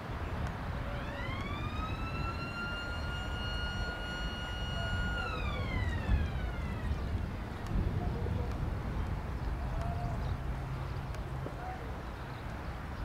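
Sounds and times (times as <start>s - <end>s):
steady low rumble: 0.0s - 11.5s
high-pitched whine: 0.8s - 7.2s.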